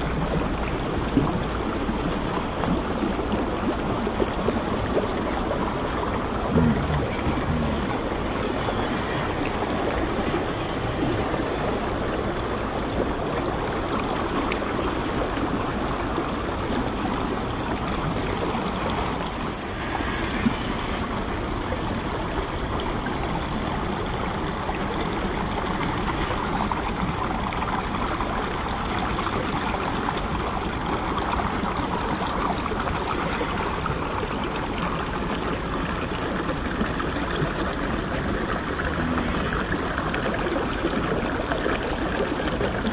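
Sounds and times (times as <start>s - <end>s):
creek water rushing over stones: 0.0s - 42.9s.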